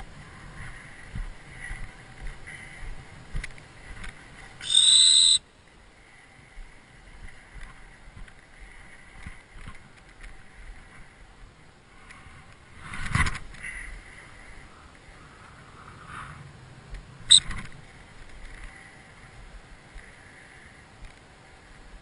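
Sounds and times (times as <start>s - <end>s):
high-pitched whistle blast: 4.6s - 5.4s.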